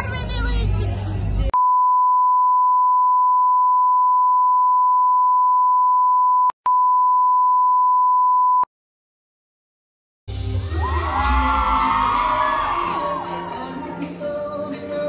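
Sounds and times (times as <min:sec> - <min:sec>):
censor bleep tone: 0:01.6 - 0:08.7.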